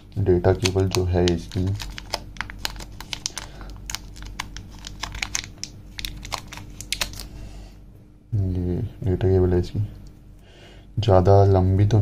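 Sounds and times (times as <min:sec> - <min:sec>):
cable wrapping crinkling: 0:00.0 - 0:07.3.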